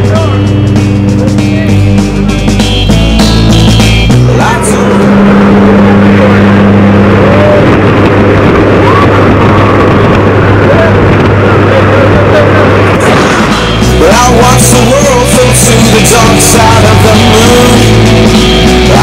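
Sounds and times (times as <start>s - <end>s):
aircraft engine drone: 0.0s - 19.0s
wind rushing: 3.3s - 16.4s.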